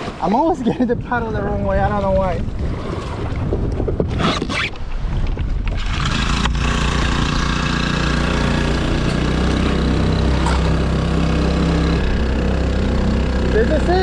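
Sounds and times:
paddle splashing: 0:00.0 - 0:00.7, 0:01.8 - 0:14.0
outboard motor running: 0:04.8 - 0:14.0.

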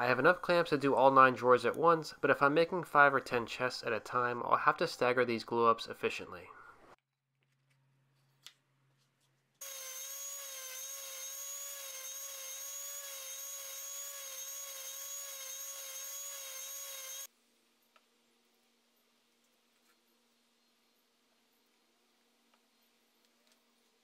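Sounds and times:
orbit sander whining: 0:09.6 - 0:17.3.

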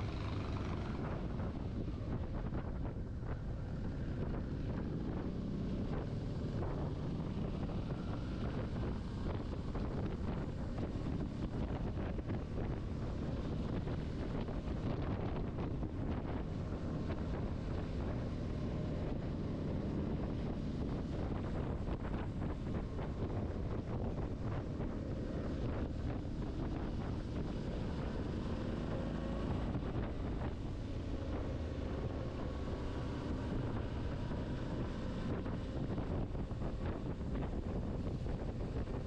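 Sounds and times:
motorcycle engine drone: 0:00.0 - 0:39.0
wind rushing over microphone: 0:00.0 - 0:39.0.

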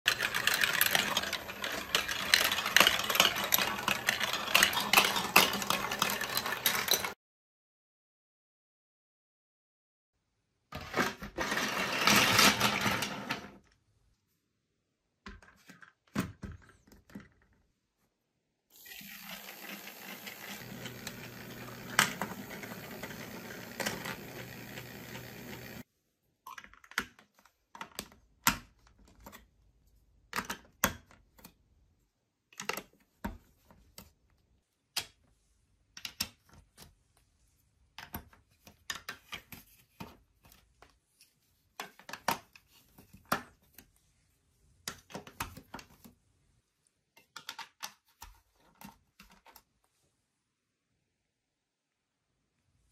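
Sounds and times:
plastic blocks clattering on table: 0:00.1 - 0:07.2, 0:10.8 - 0:13.7, 0:19.0 - 0:25.8
plastic bricks clicking together: 0:00.1 - 0:07.2
toy motor whirring: 0:00.1 - 0:07.2, 0:18.8 - 0:25.9.

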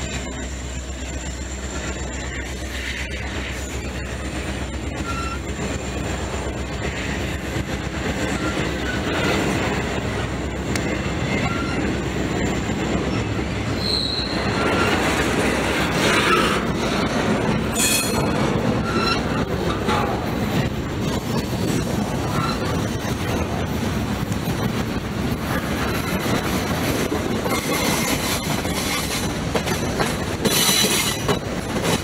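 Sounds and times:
train wheels rumbling on rails: 0:00.0 - 0:32.0
high wheel squeals: 0:00.2 - 0:06.1, 0:08.1 - 0:09.4, 0:10.9 - 0:15.3, 0:17.7 - 0:19.7, 0:22.1 - 0:22.9.

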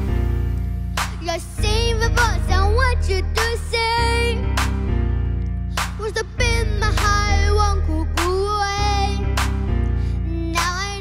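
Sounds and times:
instrumental accompaniment with bass: 0:00.0 - 0:11.0
girl singing into microphone: 0:01.0 - 0:04.6, 0:06.0 - 0:09.4, 0:10.0 - 0:11.0.

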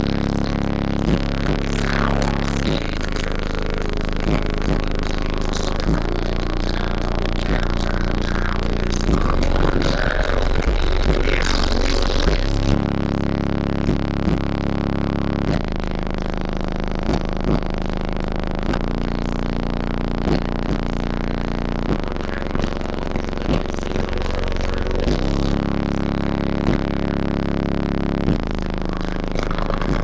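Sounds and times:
bass-heavy music through car speakers: 0:00.0 - 0:30.0.

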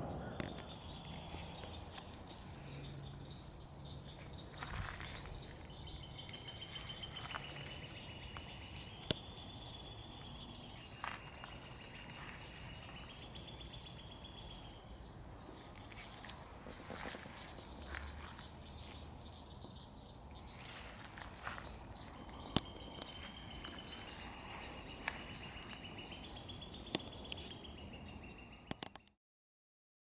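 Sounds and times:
faint chirps: 0:00.0 - 0:14.9.

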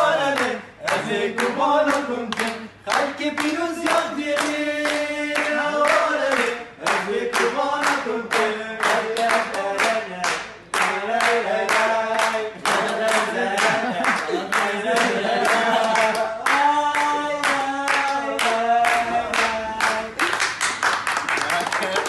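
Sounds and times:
voices singing: 0:00.0 - 0:20.3
men clapping in rhythm: 0:00.0 - 0:22.0.

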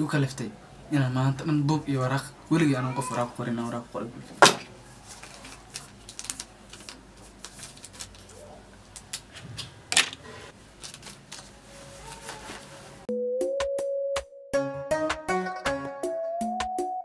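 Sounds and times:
paper rustling: 0:04.4 - 0:13.1.

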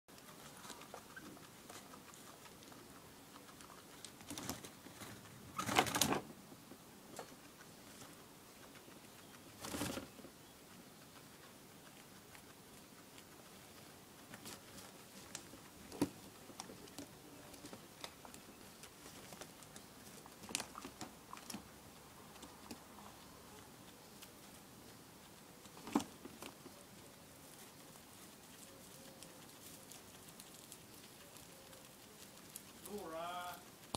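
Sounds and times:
light clicks and scratching: 0:00.1 - 0:33.0
rustling in wood shavings: 0:00.1 - 0:33.9.

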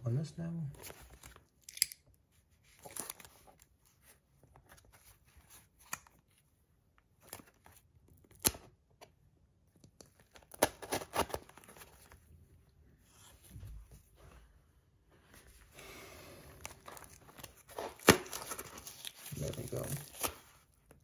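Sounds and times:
cardboard rustling: 0:16.4 - 0:21.0.

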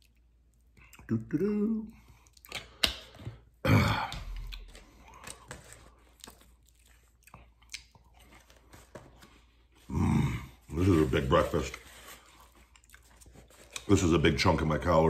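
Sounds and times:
man chewing food: 0:00.0 - 0:01.1, 0:02.0 - 0:09.9, 0:11.8 - 0:13.9.

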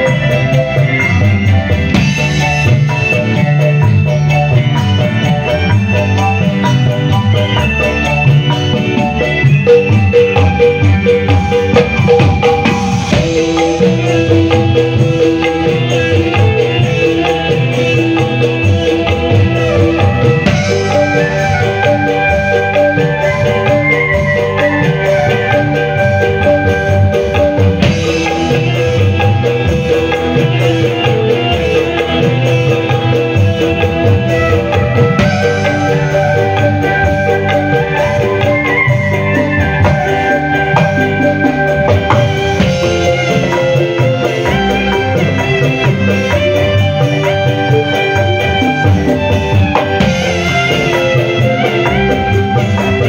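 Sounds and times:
band music: 0:00.0 - 0:53.0
hand drum pattern: 0:00.0 - 0:53.0
keyboard melody: 0:00.0 - 0:53.0.

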